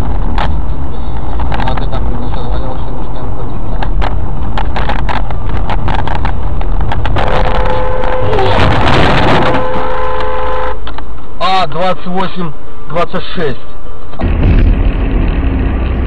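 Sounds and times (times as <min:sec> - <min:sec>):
road and engine noise in car: 0:00.0 - 0:16.0
sharp clicks and rattles: 0:00.3 - 0:02.5, 0:03.8 - 0:07.8
horn blaring: 0:07.2 - 0:10.9
truck passing: 0:13.8 - 0:16.0.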